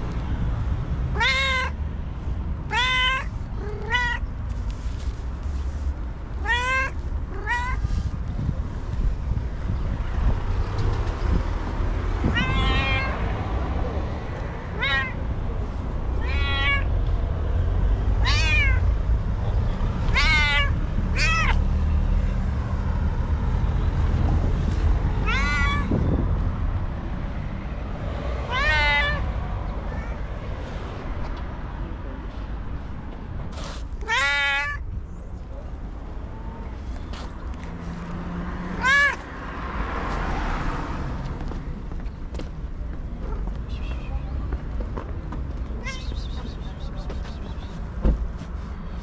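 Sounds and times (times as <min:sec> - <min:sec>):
cat meowing: 0:01.1 - 0:01.8, 0:02.7 - 0:04.3, 0:06.4 - 0:08.0, 0:12.2 - 0:13.2, 0:14.7 - 0:15.2, 0:16.1 - 0:17.0, 0:18.2 - 0:19.0, 0:20.1 - 0:21.6, 0:25.2 - 0:26.1, 0:28.5 - 0:30.6, 0:34.0 - 0:34.8, 0:38.8 - 0:39.3, 0:45.8 - 0:46.5.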